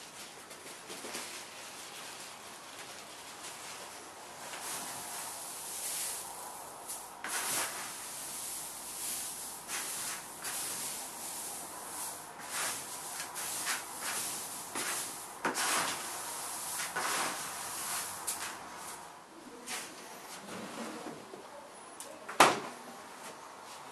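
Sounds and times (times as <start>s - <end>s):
grain rustling in plastic bucket: 1.2s - 19.1s.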